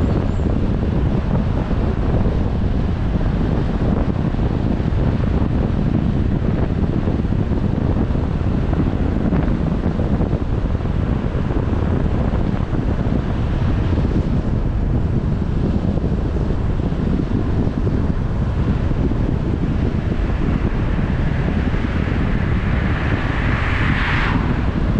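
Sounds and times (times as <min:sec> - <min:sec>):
wind buffeting microphone: 0:00.0 - 0:24.9.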